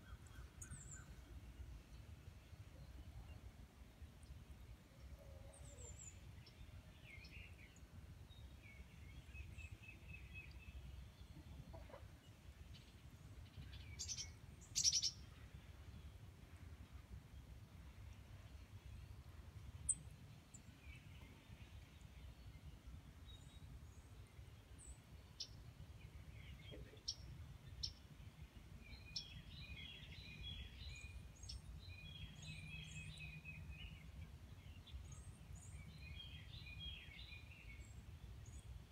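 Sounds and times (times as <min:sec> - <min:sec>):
songbirds chirping and singing: 0:28.8 - 0:38.7.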